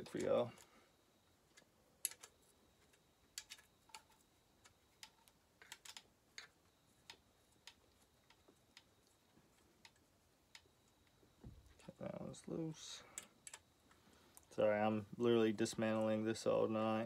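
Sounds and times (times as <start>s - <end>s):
metal parts and hand tools clicking: 5.0s - 8.9s.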